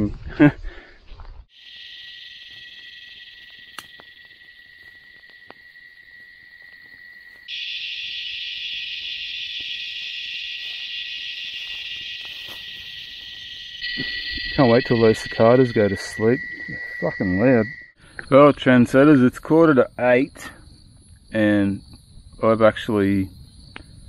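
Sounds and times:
cicada chorus buzzing: 0:01.5 - 0:24.0
campfire crackles: 0:02.9 - 0:10.8.

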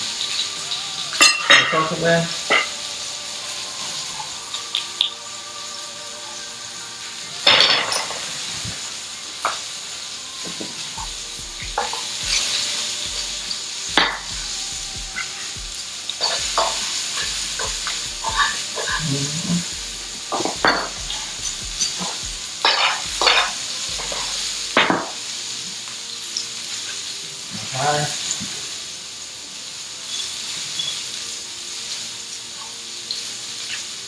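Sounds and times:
food sizzling in frying pans: 0:00.0 - 0:34.0
metal tongs scraping pans: 0:01.2 - 0:02.8, 0:07.5 - 0:08.5, 0:16.2 - 0:19.7, 0:20.3 - 0:25.2.

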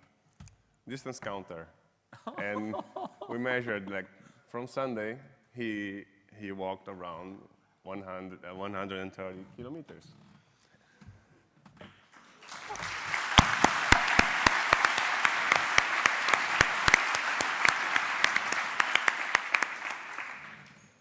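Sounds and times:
audience applause: 0:12.4 - 0:21.0
sharp single claps: 0:12.8 - 0:20.4.

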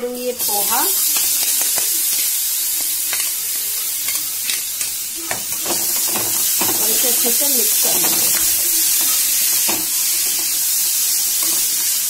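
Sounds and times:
hot oil sizzling: 0:00.0 - 0:12.0.

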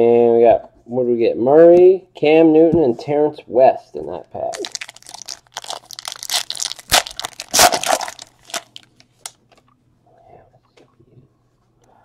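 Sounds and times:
foil wrapper crinkling and tearing: 0:04.5 - 0:09.4.

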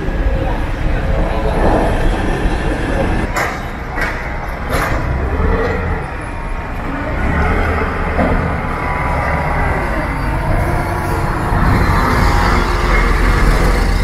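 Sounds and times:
heavy vehicle engines rumbling: 0:00.0 - 0:14.0
sharp metallic clanks: 0:03.3 - 0:06.1.

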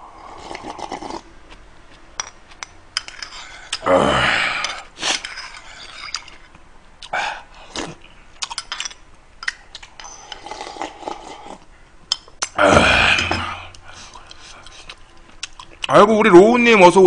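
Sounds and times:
slurping soup: 0:00.2 - 0:01.3, 0:10.0 - 0:11.7.

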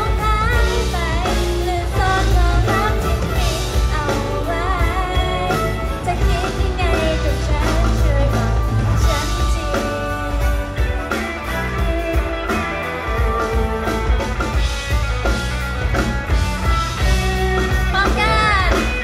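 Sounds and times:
drums: 0:00.0 - 0:19.0
guitar: 0:00.0 - 0:19.0
live pop rock band playing: 0:00.0 - 0:19.0.

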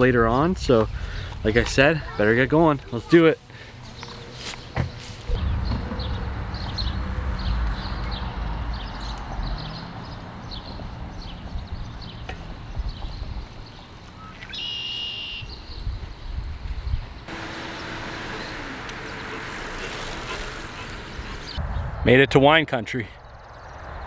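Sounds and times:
birds chirping: 0:00.0 - 0:21.9
background hiss: 0:17.3 - 0:21.6.

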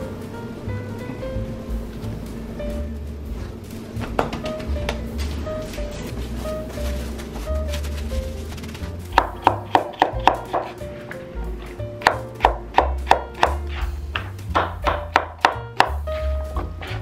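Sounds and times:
background music with bass line: 0:00.0 - 0:17.0
knife chopping on wooden board: 0:09.1 - 0:10.8, 0:12.0 - 0:16.0.

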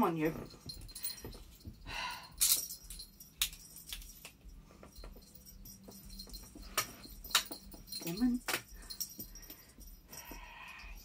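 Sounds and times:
toy jingling: 0:00.0 - 0:11.0.

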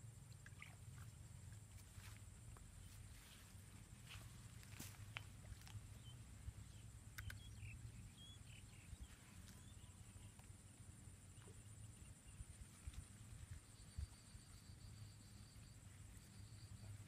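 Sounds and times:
faint clicks: 0:07.1 - 0:07.4.

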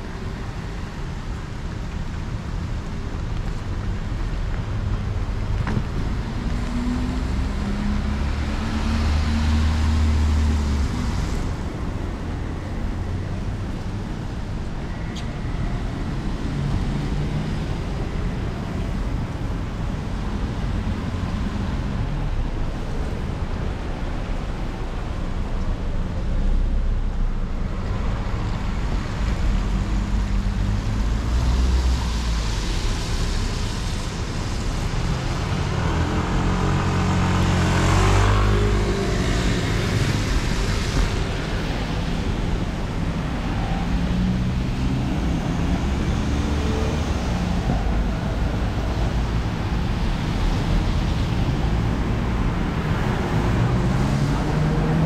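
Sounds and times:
traffic on wet roads: 0:00.0 - 0:55.0
steady rain: 0:27.7 - 0:55.0
vehicle passing with tyre hiss: 0:28.0 - 0:55.0.

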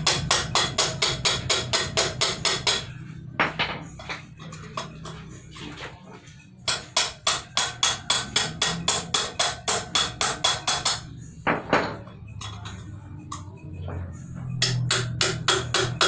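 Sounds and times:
hammer striking metal: 0:00.0 - 0:03.8, 0:06.6 - 0:13.6, 0:14.3 - 0:16.0.

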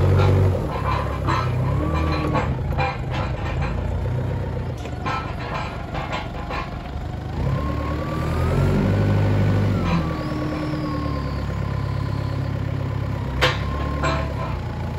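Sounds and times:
knocks and rattles: 0:00.0 - 0:07.3, 0:13.1 - 0:14.9
forklift engine running: 0:00.0 - 0:14.9.

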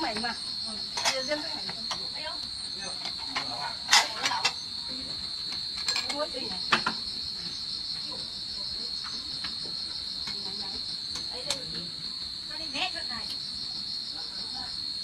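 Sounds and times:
crickets trilling: 0:00.0 - 0:15.0
sharp knocks and clatters: 0:05.5 - 0:07.0.

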